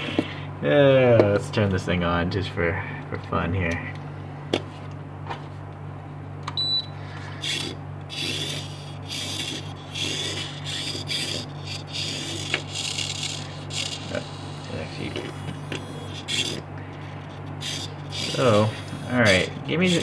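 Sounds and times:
steady low hum: 0.0s - 20.0s
short electronic beep: 6.6s - 6.9s
toy car motor whirring: 7.4s - 16.6s, 17.2s - 20.0s.

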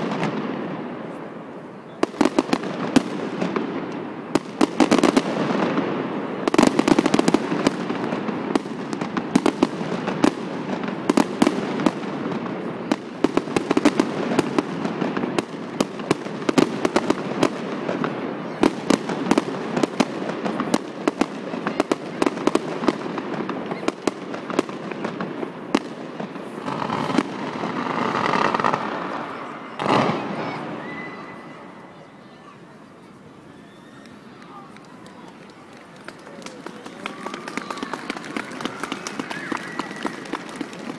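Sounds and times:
fireworks crackling and popping: 0.0s - 40.9s
sharp firework bang: 25.8s - 31.4s.

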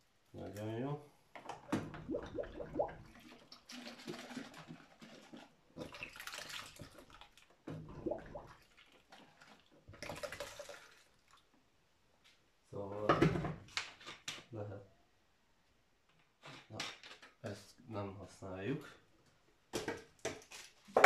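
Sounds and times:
water splashing in a plastic basin: 1.6s - 11.5s.

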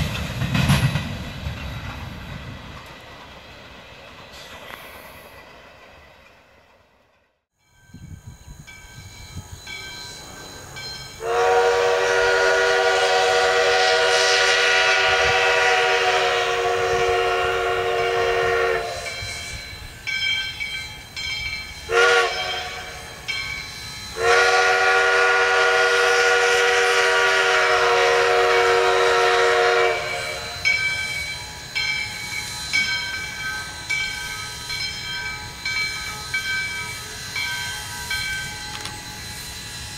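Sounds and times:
chime steam whistle blasts: 7.6s - 39.9s.

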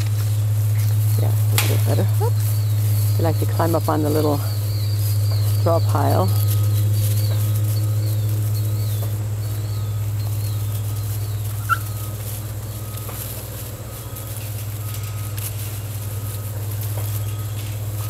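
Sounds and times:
low hum: 0.0s - 18.0s
faint short beeps: 10.7s - 18.0s.

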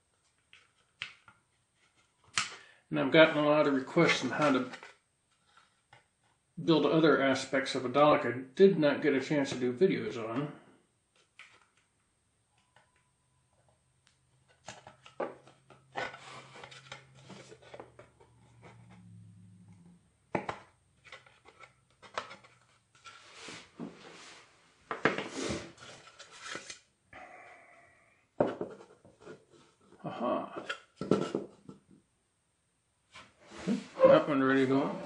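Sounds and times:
plastic parts rubbing and clicking: 20.3s - 23.4s.

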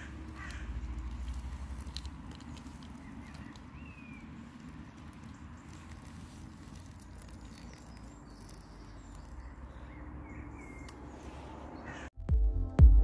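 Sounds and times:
distant traffic rumble: 0.0s - 12.2s
faint bird chirps: 3.0s - 12.1s.

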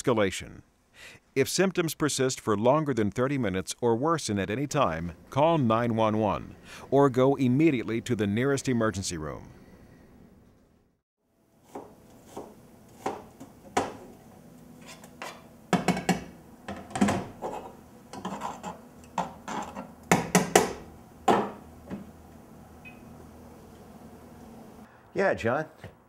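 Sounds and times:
knife knocking and scraping on board: 11.7s - 14.0s.

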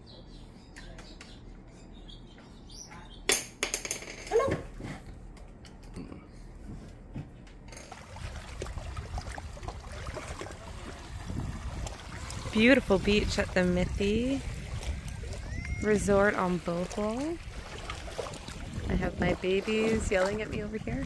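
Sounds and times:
small waves washing on shore: 7.9s - 21.0s.

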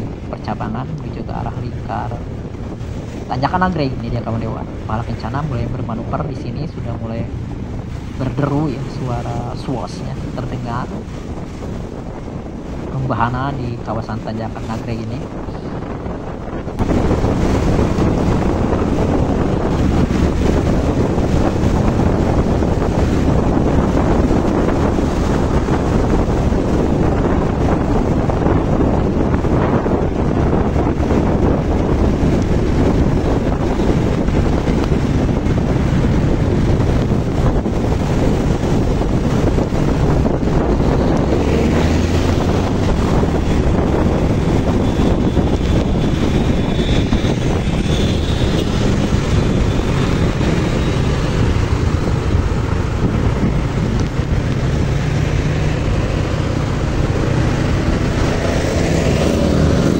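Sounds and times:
road noise: 0.0s - 59.9s
wind buffeting microphone: 0.0s - 59.9s
vehicle engine: 30.1s - 59.9s.

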